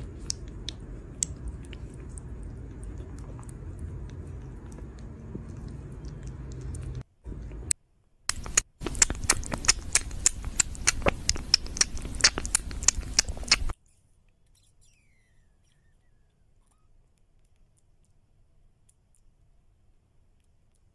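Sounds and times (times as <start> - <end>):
kitten sucking bottle clicks: 8.3 - 13.7.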